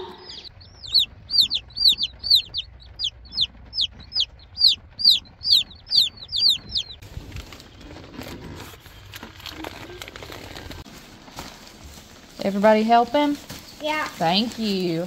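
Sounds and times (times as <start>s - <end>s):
chicks peeping: 0.0s - 8.3s.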